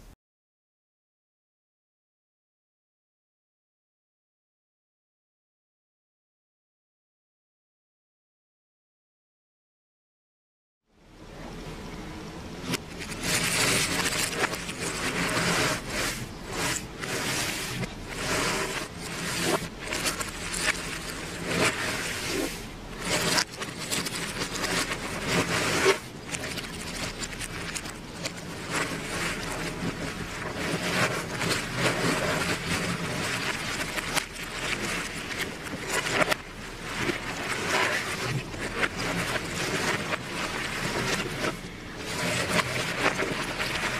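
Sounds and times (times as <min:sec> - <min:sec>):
puzzle pieces rustling and scraping: 0:12.7 - 0:43.9.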